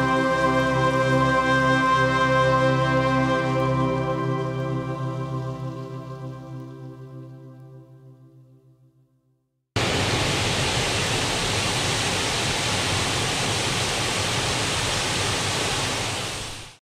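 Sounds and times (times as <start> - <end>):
rushing water: 9.8 - 16.8.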